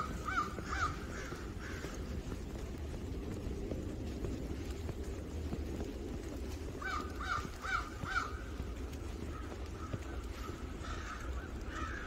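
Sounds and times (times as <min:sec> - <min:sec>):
crow cawing: 0:00.0 - 0:02.4, 0:06.8 - 0:12.0
low background rumble: 0:00.0 - 0:12.0.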